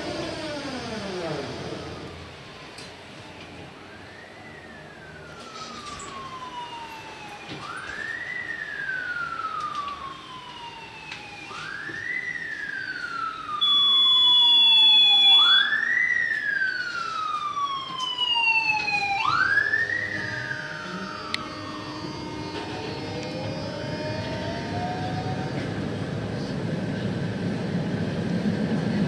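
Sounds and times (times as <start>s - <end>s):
emergency siren wailing: 0.0s - 28.2s
steady high beep: 13.6s - 15.7s.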